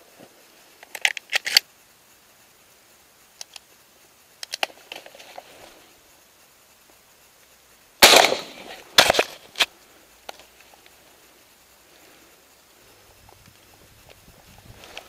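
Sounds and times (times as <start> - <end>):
faint rustling: 3.6 - 7.6, 8.4 - 15.0.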